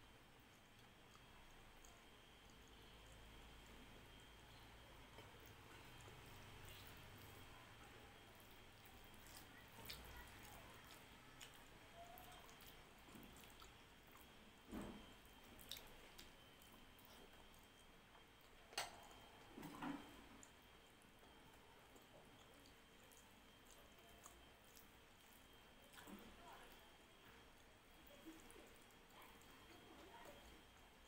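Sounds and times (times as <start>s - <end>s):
food squished by hand: 8.2s - 30.9s.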